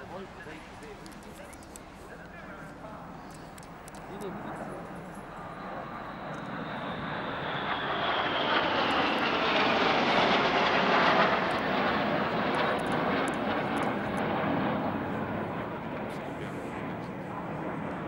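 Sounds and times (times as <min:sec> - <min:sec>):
jets flying past: 0:04.1 - 0:18.0
high jet whine falling in pitch: 0:04.2 - 0:15.9.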